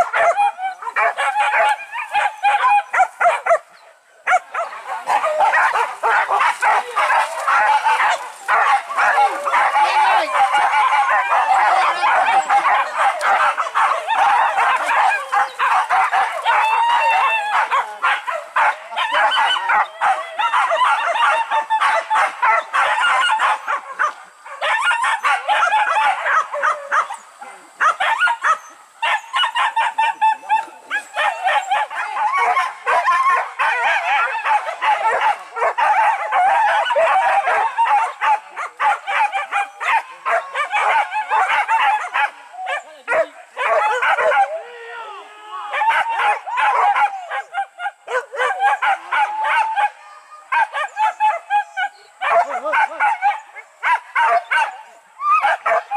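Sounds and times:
dogs barking and yelping: 0:00.0 - 0:44.7, 0:45.7 - 0:55.9.

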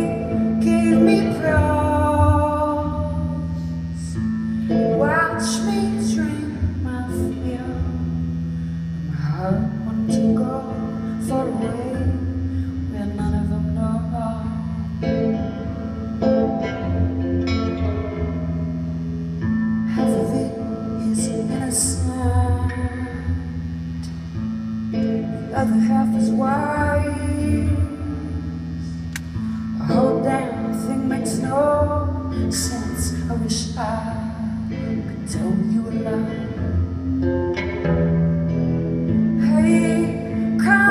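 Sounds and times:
woman singing: 0:00.0 - 0:08.2, 0:09.1 - 0:15.3, 0:19.9 - 0:23.6, 0:25.0 - 0:29.0, 0:29.6 - 0:36.9, 0:39.3 - 0:40.9
electric guitar chords: 0:00.0 - 0:40.9.

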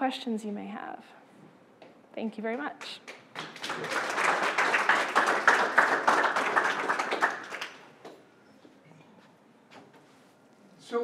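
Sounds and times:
audience applauding: 0:03.1 - 0:08.2.

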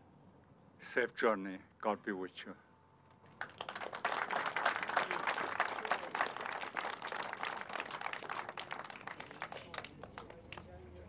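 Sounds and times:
crowd applauding: 0:03.3 - 0:10.8.

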